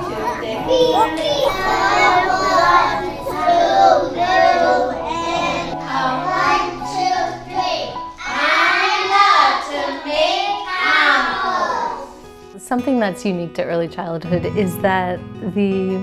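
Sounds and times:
children singing: 0.0 - 12.3.

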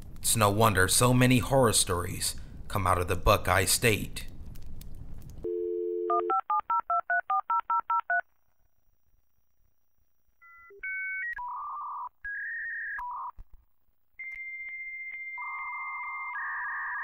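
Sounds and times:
electronic line tones and beeps: 10.4 - 13.4, 14.2 - 17.0.

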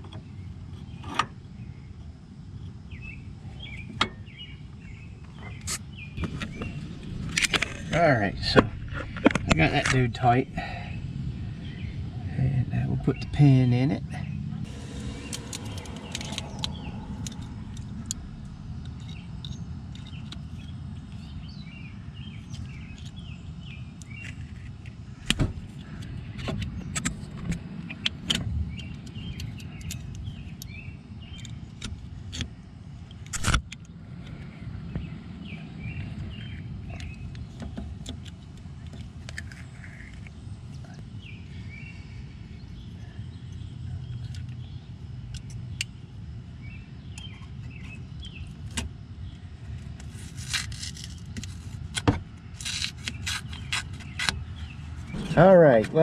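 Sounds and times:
steady low rumble: 5.9 - 33.2, 54.6 - 56.0.

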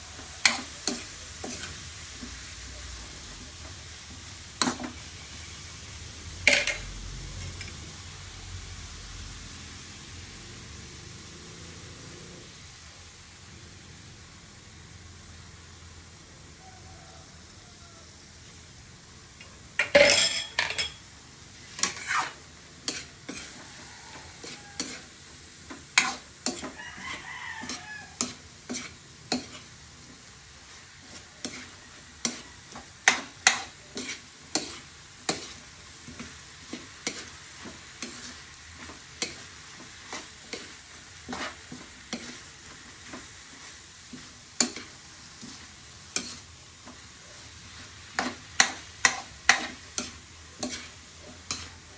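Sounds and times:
spatula scraping a wok: 0.0 - 8.1, 19.8 - 51.9
low sizzle: 0.0 - 51.9.

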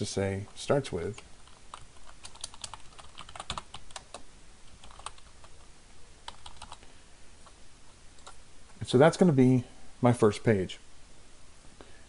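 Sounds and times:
typing on keyboard: 1.1 - 4.2, 4.8 - 5.6, 6.2 - 6.8.

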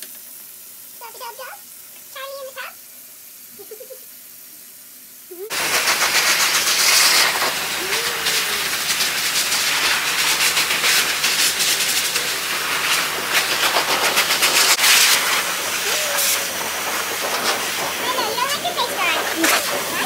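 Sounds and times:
air fluttering through fur: 5.5 - 18.1
pet dryer blowing air: 5.5 - 20.0.

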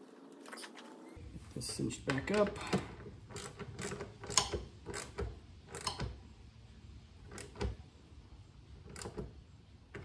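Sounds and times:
wrench clicking tightening a bolt: 3.3 - 6.1.

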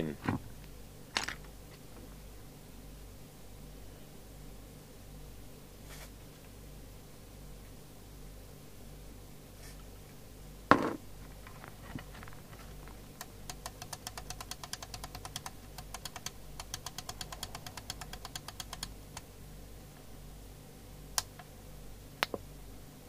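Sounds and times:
radio set down knock: 10.7 - 11.0
rotary switch clicking: 13.2 - 19.3.

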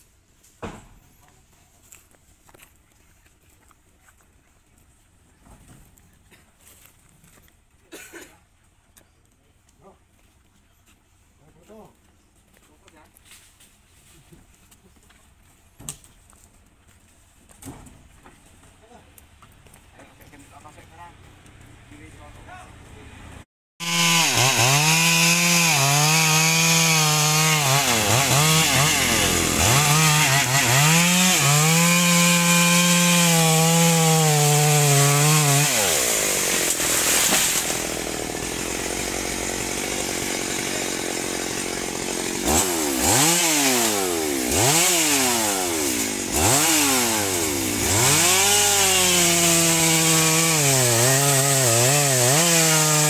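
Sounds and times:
chainsaw revving: 23.8 - 53.0.

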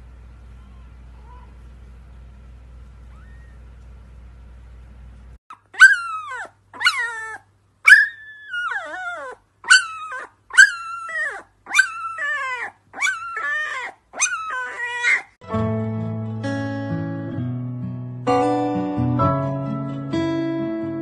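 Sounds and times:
animal crying high and sliding down: 3.1 - 3.6
guitar music: 15.4 - 21.0.

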